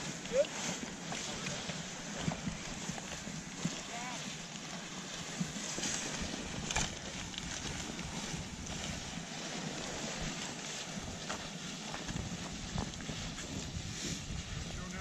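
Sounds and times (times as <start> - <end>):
wind buffeting microphone: 5.3 - 15.0.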